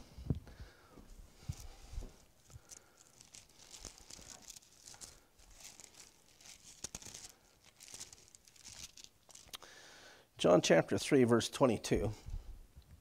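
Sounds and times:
thin pages rustling: 1.4 - 9.6.

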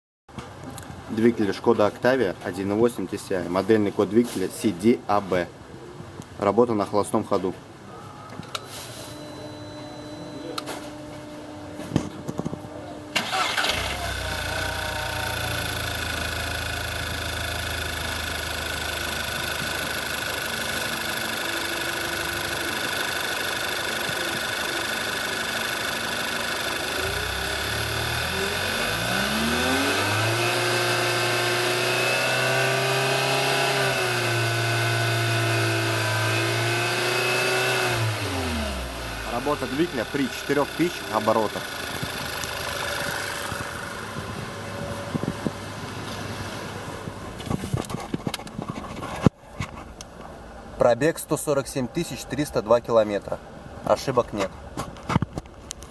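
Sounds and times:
car engine starting and idling: 13.1 - 47.4
car engine revving: 13.2 - 45.1.

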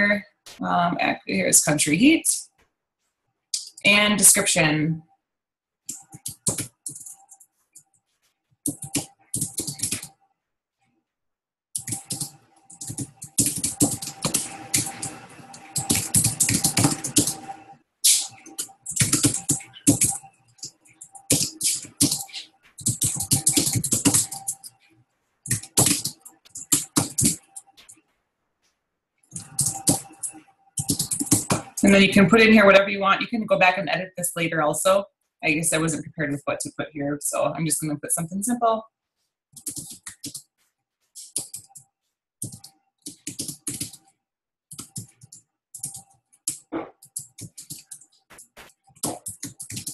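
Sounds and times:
typing on computer keyboard: 5.9 - 7.4, 8.7 - 10.1, 11.8 - 24.8, 25.5 - 27.9, 29.3 - 32.0, 39.6 - 40.4, 41.2 - 41.8, 42.4 - 44.1, 44.7 - 49.9.

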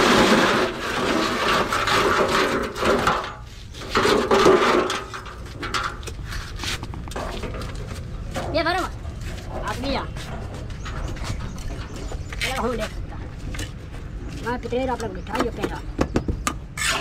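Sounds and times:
shovel scraping in metal wheelbarrow: 0.0 - 8.5, 16.7 - 17.0.

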